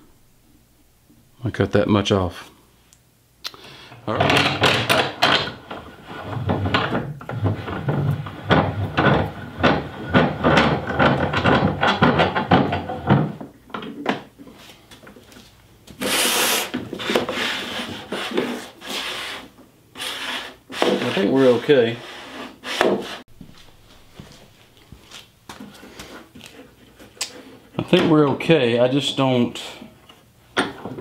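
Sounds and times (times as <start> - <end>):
wooden board scraping on table: 4.2 - 13.4, 16.0 - 23.2.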